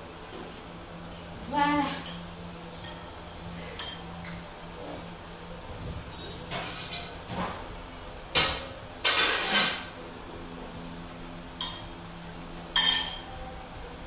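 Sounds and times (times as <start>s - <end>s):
fork clinking and scraping plates: 8.4s - 9.9s, 12.7s - 13.3s.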